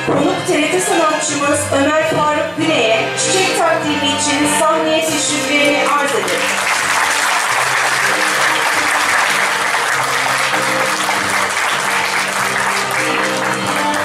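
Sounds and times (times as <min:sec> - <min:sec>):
music playing: 0:00.0 - 0:14.0
people clapping: 0:05.3 - 0:14.0.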